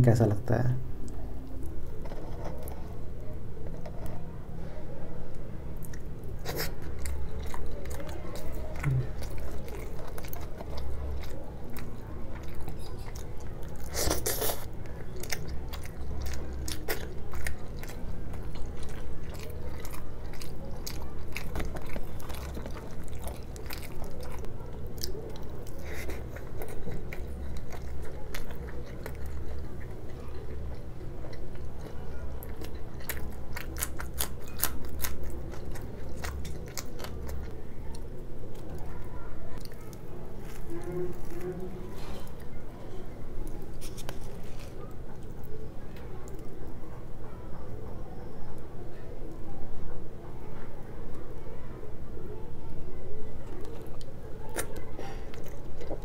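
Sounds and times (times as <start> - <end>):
chewing crunchy snacks: 5.8 - 46.8, 53.3 - 56.0.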